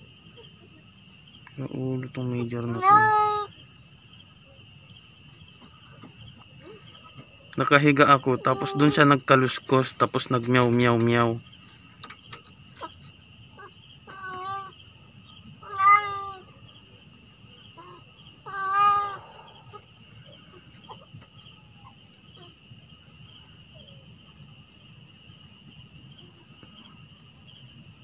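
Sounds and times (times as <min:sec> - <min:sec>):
crickets chirring: 0:00.0 - 0:28.0
cat meowing: 0:02.7 - 0:03.5, 0:08.4 - 0:09.0, 0:15.6 - 0:16.5, 0:17.8 - 0:19.3.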